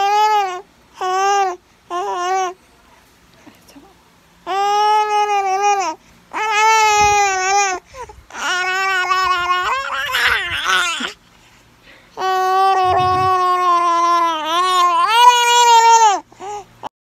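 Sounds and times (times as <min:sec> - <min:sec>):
infant crying: 0:12.2 - 0:16.2.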